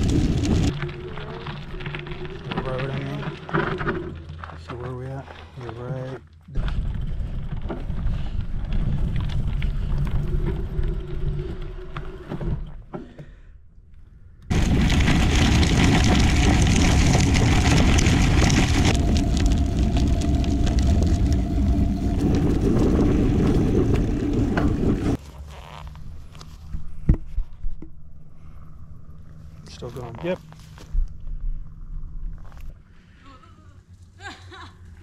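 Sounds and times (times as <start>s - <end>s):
wind rumbling on microphone: 0.0s - 4.0s, 14.5s - 25.2s
bike tyres crunching on gravel: 0.0s - 10.8s, 14.5s - 26.7s.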